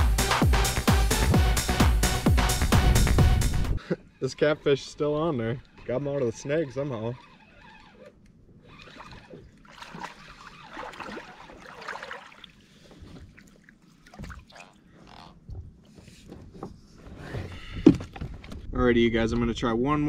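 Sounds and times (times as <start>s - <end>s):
water sloshing and splashing: 5.6s - 16.4s.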